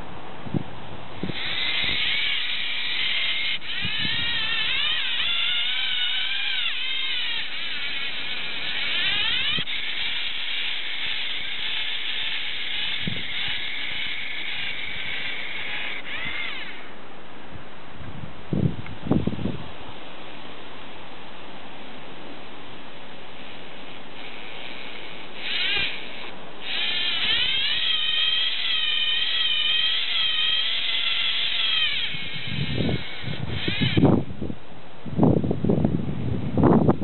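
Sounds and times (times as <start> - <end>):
high motor whine: 1.0 - 17.0, 23.3 - 34.5.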